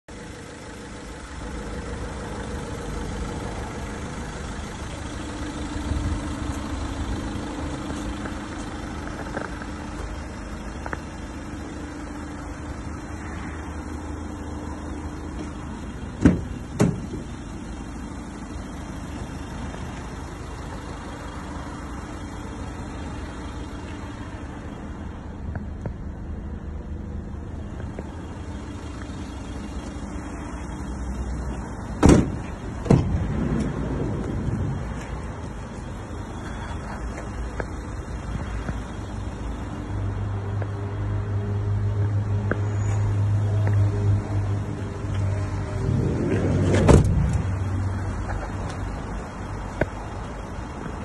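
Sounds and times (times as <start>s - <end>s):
van engine idling: 0.1s - 51.0s
sharp clunks: 32.0s - 33.2s.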